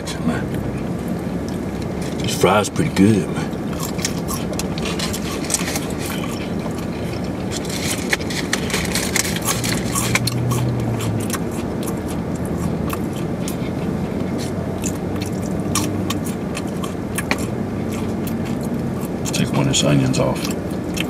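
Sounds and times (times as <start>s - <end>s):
low background hum: 0.0s - 21.0s
person chewing food: 3.4s - 21.0s
paper wrappers crackling: 3.8s - 10.5s.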